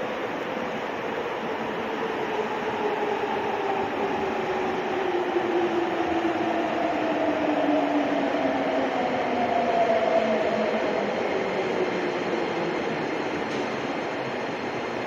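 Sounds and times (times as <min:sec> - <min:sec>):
subway train rumble: 0:00.0 - 0:15.0.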